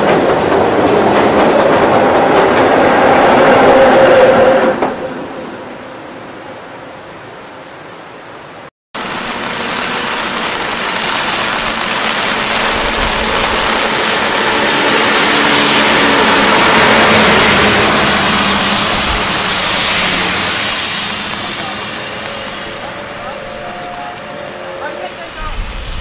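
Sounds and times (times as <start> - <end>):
rush of rain and flood water: 4.8 - 26.0
truck driving past on wet road: 9.0 - 25.4.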